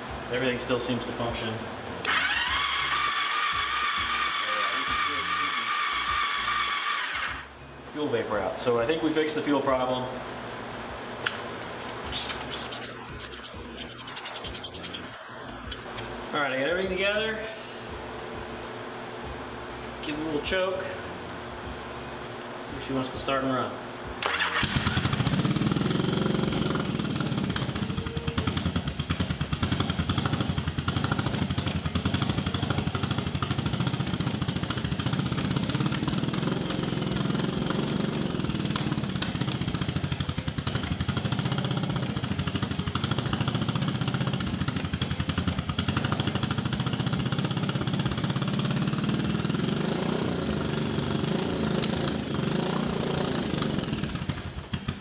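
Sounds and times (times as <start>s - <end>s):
motorcycle engine running: 24.3s - 55.0s.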